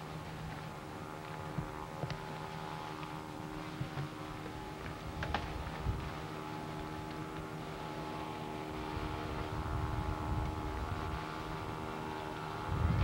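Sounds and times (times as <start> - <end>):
steady low hum: 0.0 - 13.0
wind buffeting microphone: 3.2 - 13.0.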